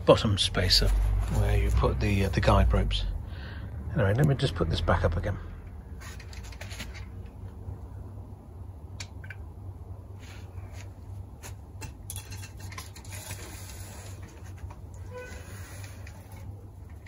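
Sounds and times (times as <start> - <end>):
low background rumble: 0.0 - 11.4.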